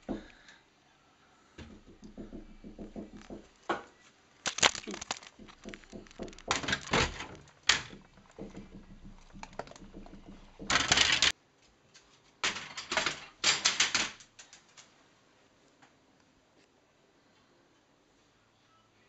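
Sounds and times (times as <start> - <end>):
bread knocking against flap: 1.6 - 3.9, 4.5 - 11.3
plastic pet flap clattering: 4.5 - 11.3.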